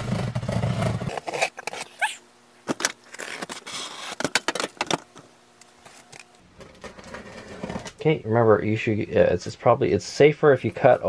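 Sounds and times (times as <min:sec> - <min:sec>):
knife cutting tape and cardboard: 0:00.7 - 0:04.5.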